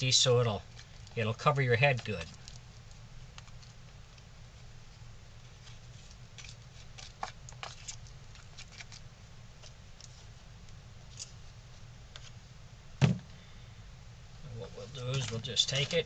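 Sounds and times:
stick stirring putty in plastic tub: 0:00.0 - 0:03.7, 0:04.9 - 0:09.0, 0:14.6 - 0:16.0.

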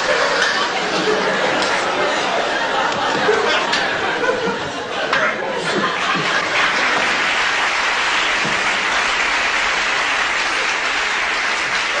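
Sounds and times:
studio audience applauding: 0:06.1 - 0:12.0.

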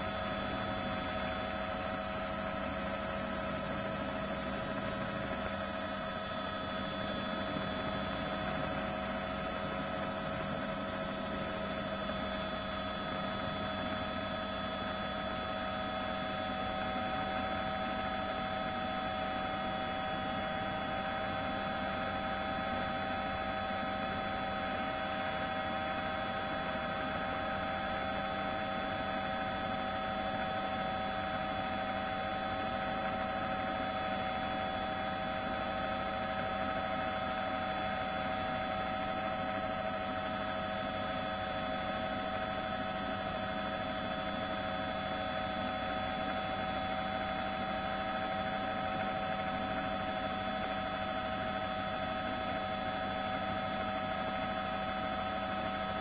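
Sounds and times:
steady hum with whining tones: 0:00.0 - 0:56.0.

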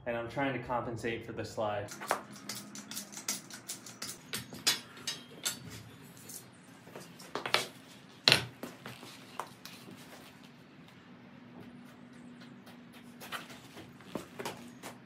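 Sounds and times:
metal tubing clinking on concrete: 0:01.9 - 0:07.7
light scuffing: 0:08.6 - 0:15.0.

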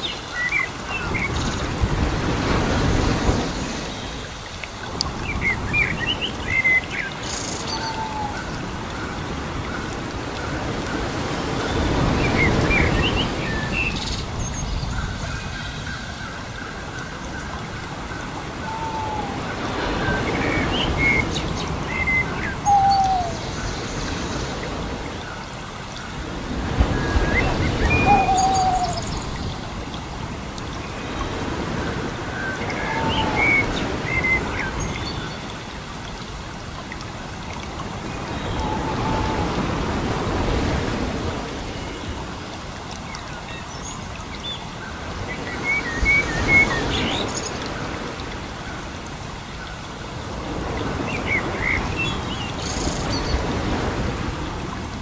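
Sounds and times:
birds chirping: 0:20.5 - 0:24.2, 0:27.4 - 0:29.6.

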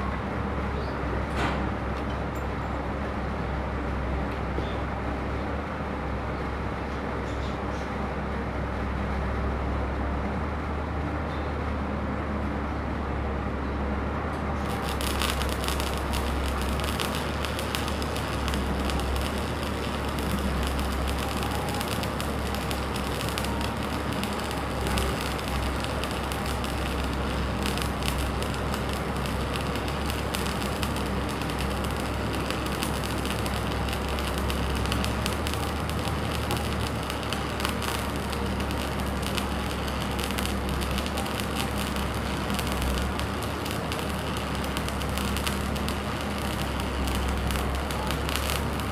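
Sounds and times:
welding arc crackling: 0:14.5 - 0:48.9.

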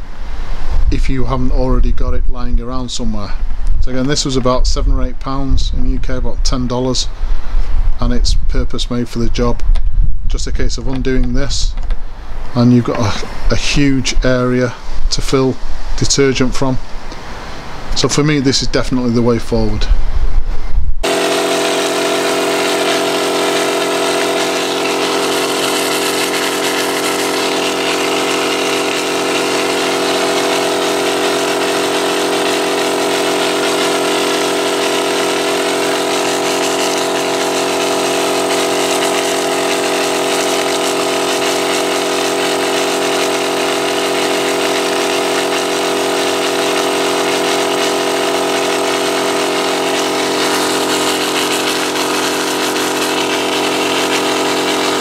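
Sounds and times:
air compressor motor drone: 0:21.0 - 0:55.0.

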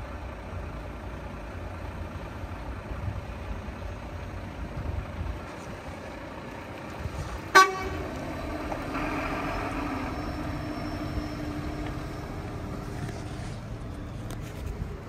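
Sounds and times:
truck engine running: 0:00.0 - 0:15.0
truck horn toot: 0:07.5 - 0:11.8.

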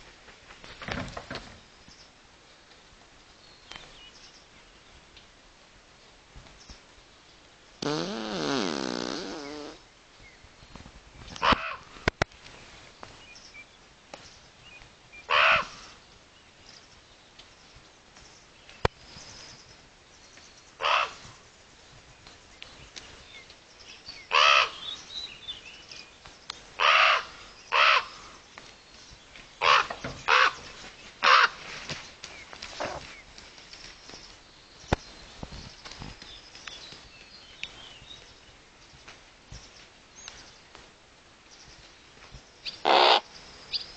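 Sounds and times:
ravens croaking: 0:11.4 - 0:12.0, 0:15.3 - 0:16.0, 0:20.8 - 0:21.3, 0:24.3 - 0:24.8, 0:26.8 - 0:28.4, 0:29.6 - 0:31.6, 0:42.7 - 0:43.3.

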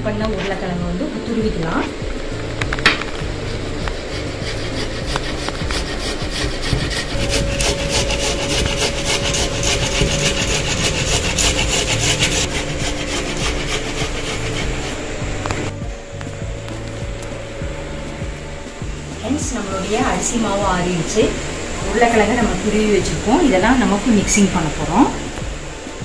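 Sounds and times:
potato rasping on grater: 0:03.1 - 0:15.7.

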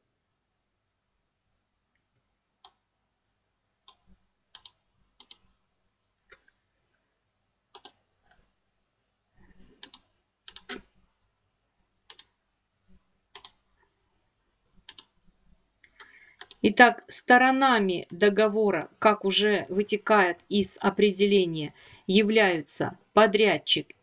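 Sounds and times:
computer mouse clicks: 0:03.9 - 0:05.6, 0:07.7 - 0:08.4, 0:09.8 - 0:10.9, 0:12.1 - 0:12.4, 0:13.3 - 0:13.6, 0:14.8 - 0:16.6.

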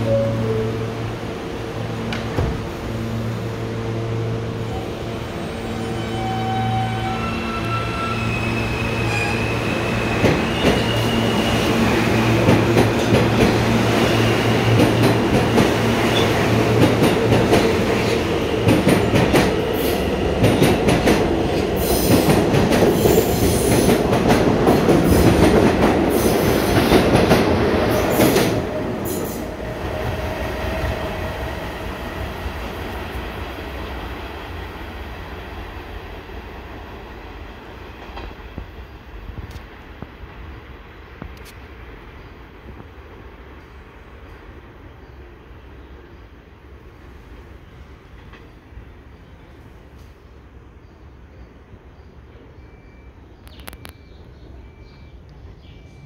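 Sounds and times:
subway train motor hum: 0:00.0 - 0:08.0.

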